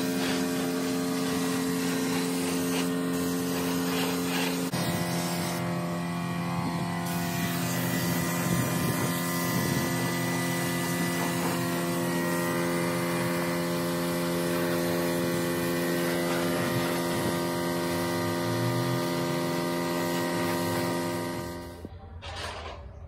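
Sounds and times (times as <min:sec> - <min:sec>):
paint spray gun hissing: 0:00.0 - 0:05.8, 0:07.0 - 0:18.4
steady machine hum: 0:00.0 - 0:21.9.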